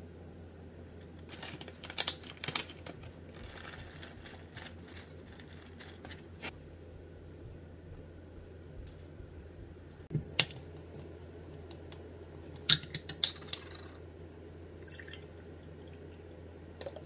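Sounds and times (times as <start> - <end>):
paper bag crinkling: 1.2 - 6.5.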